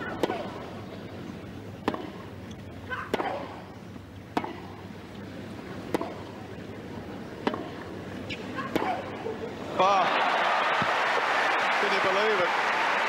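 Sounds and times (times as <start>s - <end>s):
tennis ball hit by racket: 0.1s - 0.6s, 1.8s - 2.2s, 3.1s - 3.6s, 4.3s - 4.8s, 5.9s - 6.3s, 7.4s - 7.8s, 8.7s - 9.0s.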